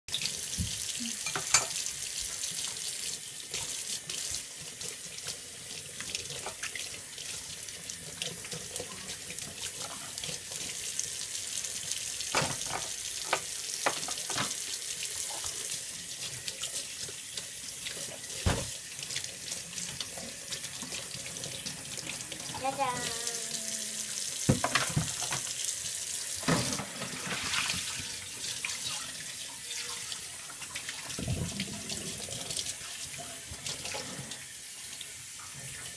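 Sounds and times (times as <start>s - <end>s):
dishes knocking against sink: 24.5s - 25.4s
tap running into steel sink: 24.5s - 25.5s.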